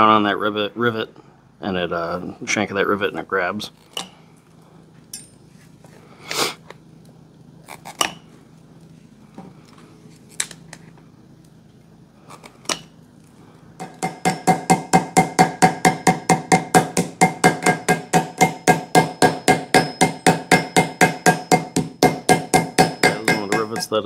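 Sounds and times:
hammer tapping on metal anvil: 0:13.8 - 0:24.0.

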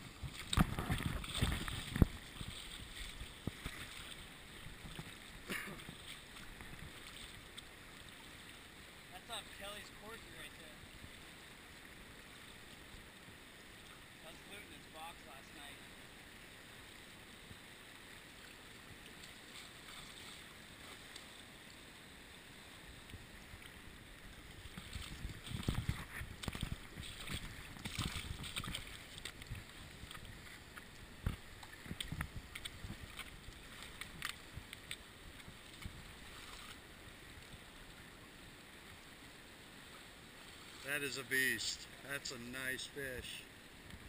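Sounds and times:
microphone bumps and buffeting: 0:00.0 - 0:03.9, 0:24.6 - 0:34.3.

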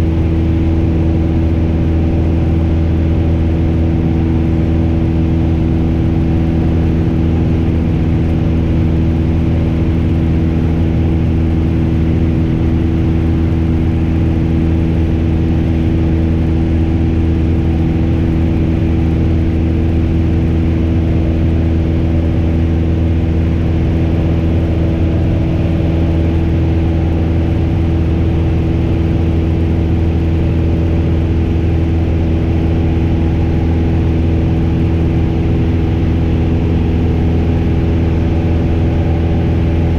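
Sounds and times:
propeller plane engine droning: 0:00.0 - 0:39.9.

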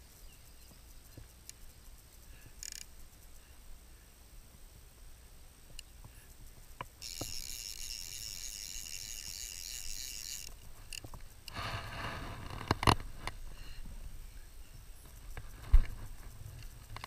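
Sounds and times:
light ticks: 0:00.6 - 0:01.7, 0:05.7 - 0:07.5
fly reel drag buzzing: 0:06.2 - 0:13.5.

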